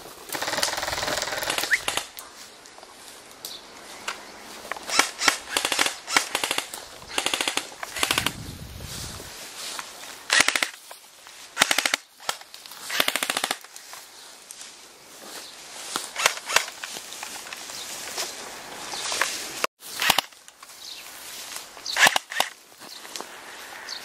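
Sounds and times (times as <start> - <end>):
airsoft rifles firing bursts: 0.3 - 2.1, 4.9 - 8.4, 10.3 - 10.8, 11.6 - 13.7, 22.0 - 22.6.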